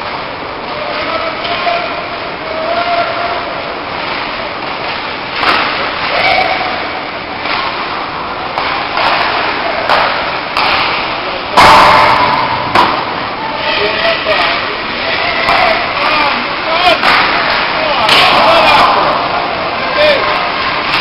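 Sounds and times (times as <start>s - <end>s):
crowd and arena hum: 0.0s - 21.0s
hockey sticks and puck knocking: 4.0s - 6.3s, 7.4s - 12.1s, 14.3s - 16.2s, 16.9s - 19.1s, 20.4s - 21.0s
loud crack: 8.6s - 13.4s, 17.0s - 19.2s.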